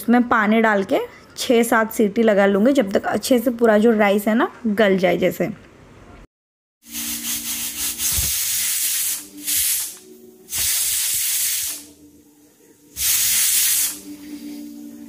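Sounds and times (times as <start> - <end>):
pressure cooker hissing bursts: 6.9 - 12.0, 13.0 - 14.2.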